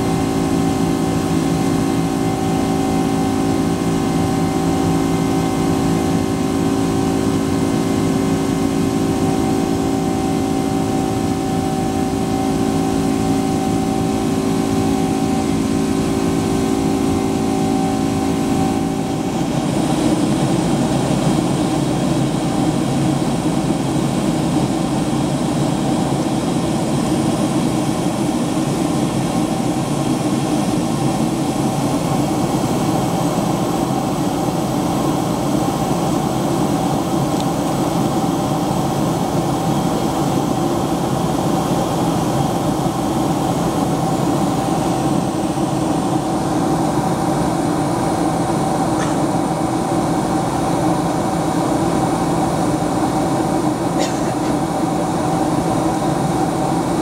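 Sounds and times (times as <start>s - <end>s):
constant hums: 0.0s - 57.0s
jet engine drone: 0.0s - 57.0s.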